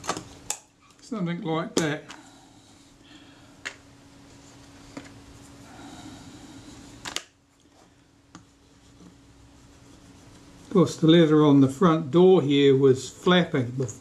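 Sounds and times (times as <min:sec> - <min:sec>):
cloth rubbing on leatherette: 0:08.5 - 0:12.6.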